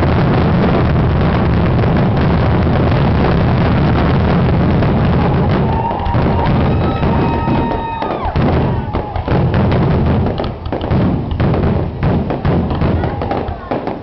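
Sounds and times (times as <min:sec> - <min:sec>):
fireworks booming and crackling: 0:00.0 - 0:14.0
high firework whistle: 0:05.1 - 0:09.8.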